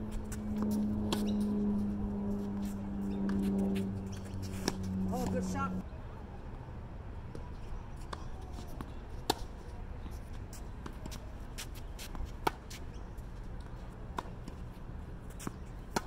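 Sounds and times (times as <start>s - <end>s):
low background hum: 0.0s - 10.4s.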